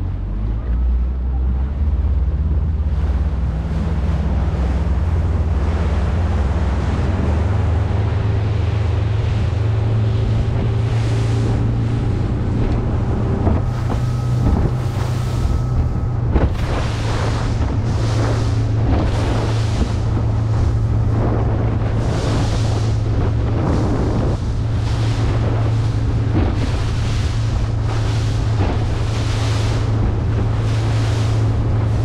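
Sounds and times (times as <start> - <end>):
hull rushing through water: 0.0 - 32.0
motorboat engine running: 0.0 - 32.0
wind buffeting microphone: 1.4 - 32.0.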